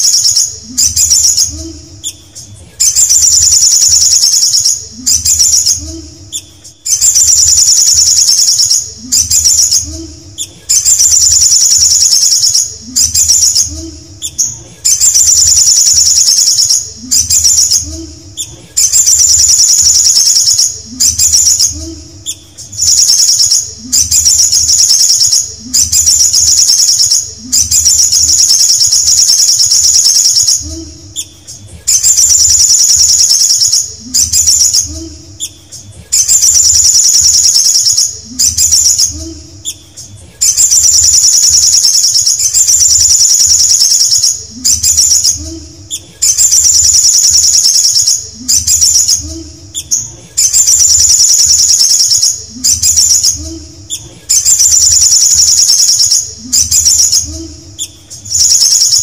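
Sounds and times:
bird singing rapid high trills: 0.0s - 59.0s.

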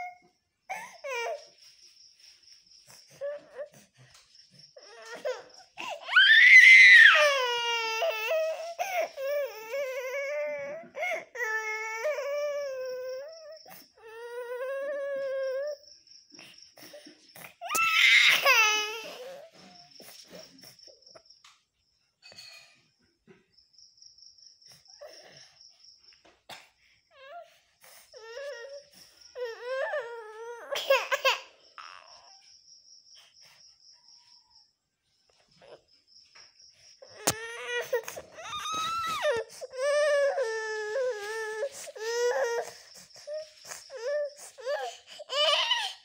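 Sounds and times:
small child crying: 0.0s - 1.5s, 4.8s - 15.8s, 17.6s - 19.8s, 27.1s - 32.4s, 37.0s - 46.0s.

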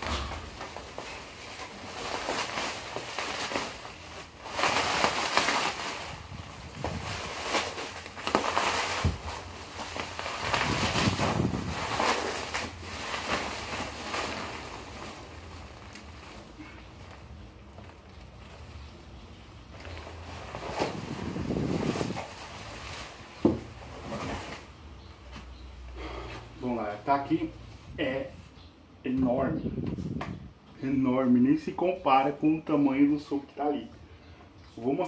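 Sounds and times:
bubble wrap rustling and crinkling: 0.0s - 25.7s.

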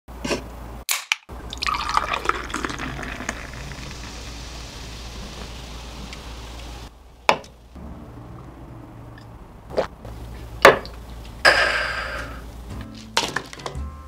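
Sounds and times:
beer pouring into glass: 1.3s - 6.2s
foam fizzing hiss: 2.0s - 6.9s.

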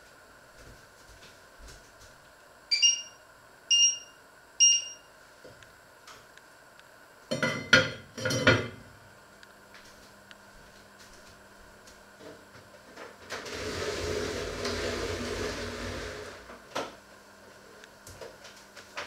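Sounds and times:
faint steady hum: 0.0s - 19.0s
short electronic beeps: 2.7s - 5.0s.

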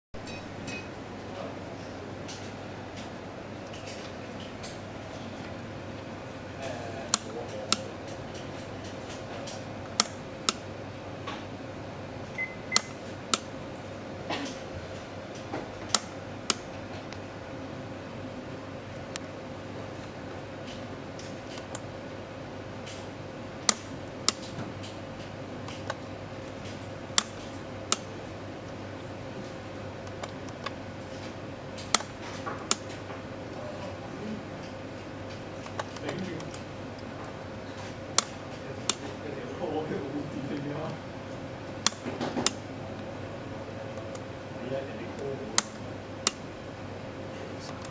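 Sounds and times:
faint steady hum: 0.2s - 47.9s
push button clicks: 12.4s - 13.0s.

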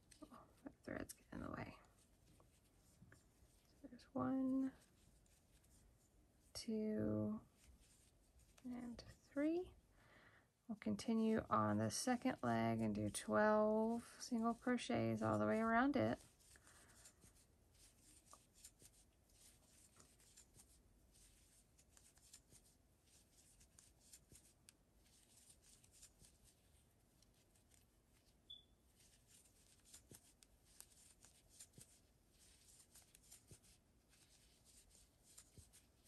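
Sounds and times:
crochet hook working yarn: 14.5s - 36.0s
short high chirp: 28.5s - 28.8s.

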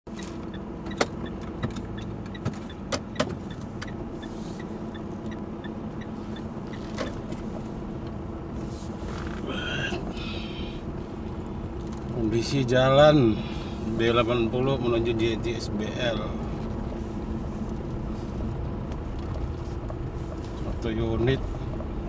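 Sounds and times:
vehicle engine and road drone: 0.1s - 22.0s.

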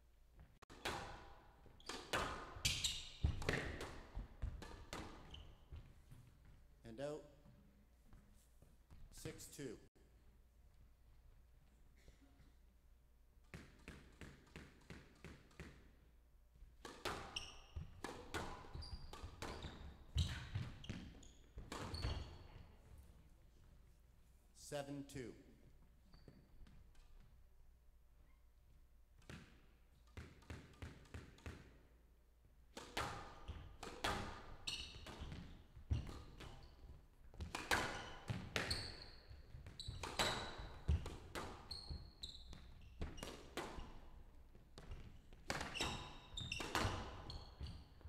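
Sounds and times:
shoes squeaking on court floor: 0.8s - 6.6s, 16.9s - 23.8s, 26.0s - 27.3s, 33.2s - 48.0s.

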